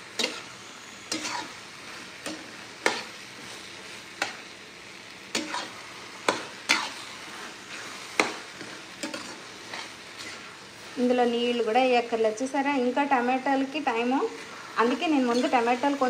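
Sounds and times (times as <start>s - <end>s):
vegetables sizzling: 0.0s - 16.0s
metal spatula scraping pan: 0.2s - 4.4s, 5.3s - 10.6s, 15.2s - 15.8s.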